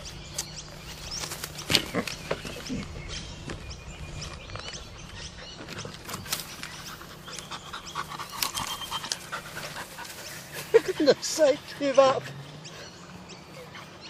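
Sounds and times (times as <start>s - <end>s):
dog panting: 6.6s - 14.0s.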